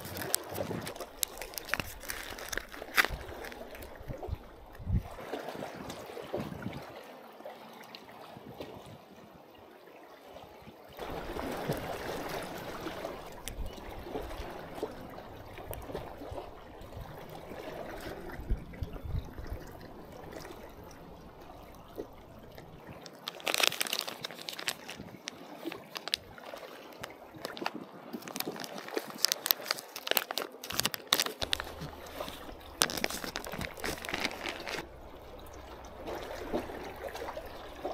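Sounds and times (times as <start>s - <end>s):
plastic packet crinkling: 0.0s - 4.2s, 13.2s - 13.7s, 21.7s - 37.9s
sea water sloshing and gurgling: 0.0s - 37.9s.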